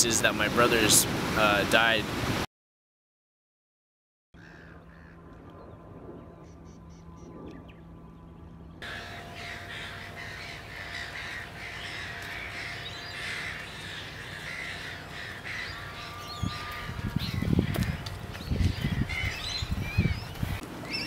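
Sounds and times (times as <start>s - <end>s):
birds calling: 4.4s - 21.0s.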